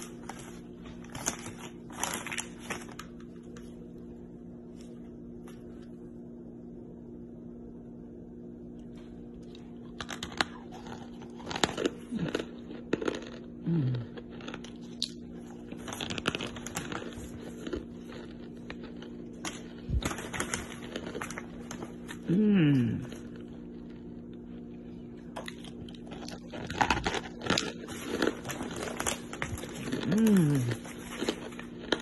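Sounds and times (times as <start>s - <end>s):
plastic bag crinkling: 0.0s - 3.6s, 15.3s - 22.3s, 25.8s - 32.0s
steady low hum: 0.0s - 32.0s.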